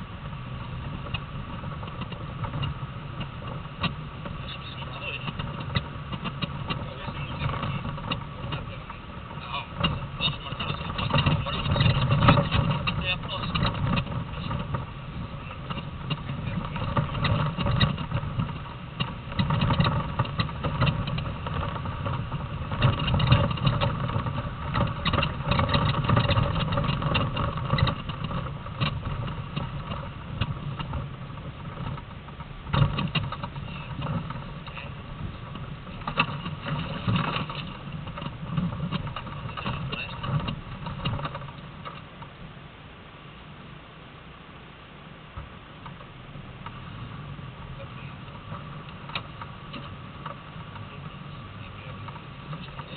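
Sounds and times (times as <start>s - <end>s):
vehicle knocks and rattles: 0.0s - 42.5s, 45.2s - 52.9s
engine rumble: 0.0s - 52.9s.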